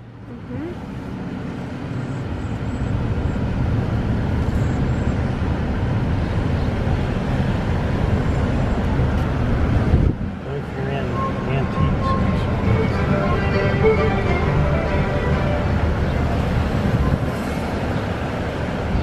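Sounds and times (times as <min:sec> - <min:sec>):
car engine rumble: 0:00.0 - 0:19.0
road noise: 0:00.0 - 0:19.0.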